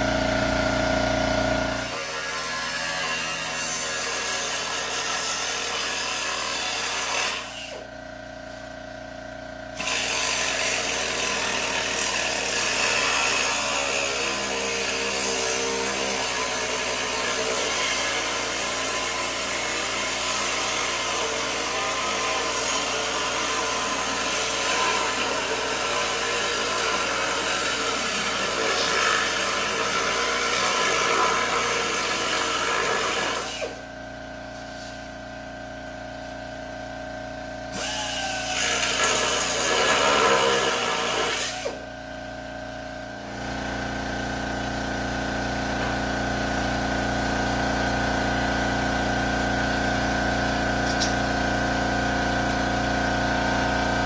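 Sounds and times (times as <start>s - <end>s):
angle grinder cutting metal: 1.7s - 7.9s, 9.7s - 33.9s, 37.7s - 41.8s.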